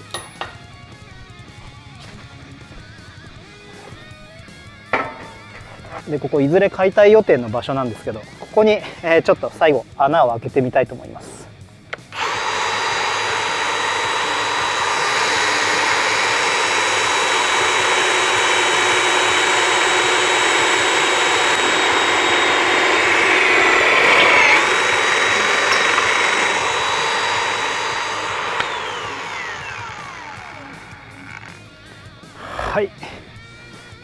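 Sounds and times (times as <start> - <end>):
grinding cutting steel: 5.0 - 6.3, 12.1 - 32.8
magnetic drill whining: 11.9 - 34.0.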